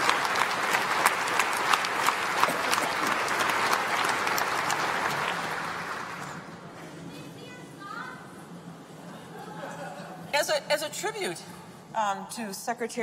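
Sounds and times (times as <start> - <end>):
large audience applauding: 0.0 - 6.6.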